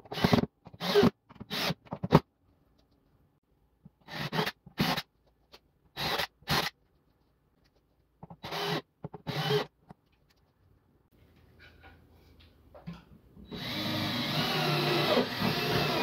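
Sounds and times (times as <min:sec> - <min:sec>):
cordless drill driving screws: 0:08.4 - 0:09.7, 0:13.5 - 0:16.0.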